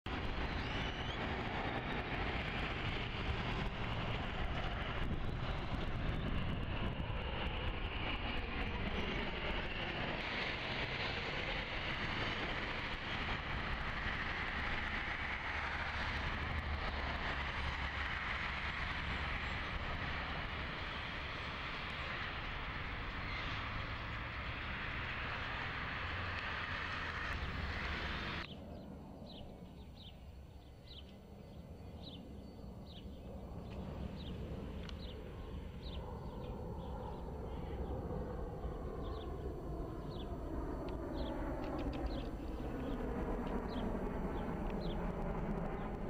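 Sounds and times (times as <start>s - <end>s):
jet engine noise: 0.1s - 46.0s.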